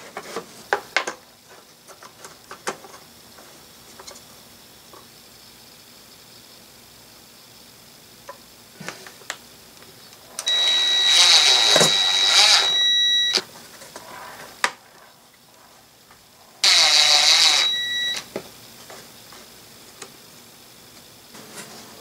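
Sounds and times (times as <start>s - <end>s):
cordless drill motor whine: 10.4s - 13.5s, 16.6s - 18.3s.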